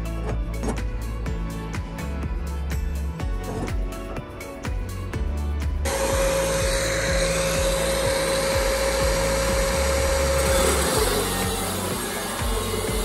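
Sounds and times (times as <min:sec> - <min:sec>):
background music with low beat: 0:00.0 - 0:13.0
angle grinder cutting metal: 0:05.9 - 0:13.0.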